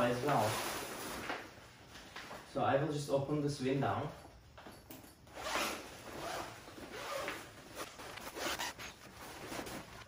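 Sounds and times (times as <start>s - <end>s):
coated fabric rustling: 5.3s - 10.0s
zipper being pulled open: 5.3s - 10.0s.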